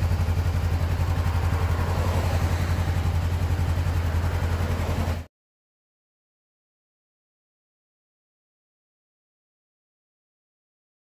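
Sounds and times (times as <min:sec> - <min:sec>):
motorcycle engine idling: 0:00.0 - 0:05.3.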